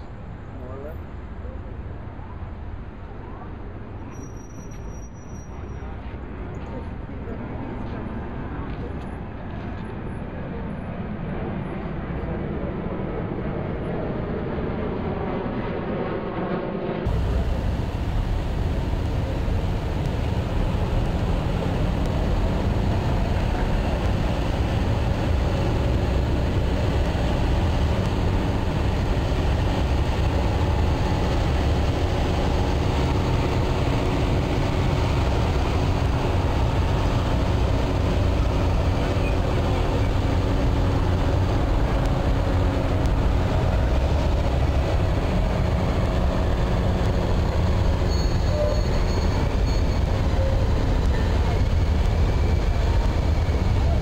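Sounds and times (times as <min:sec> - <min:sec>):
traffic driving past: 0:17.0 - 0:54.0
heavy low rumble: 0:17.1 - 0:54.0.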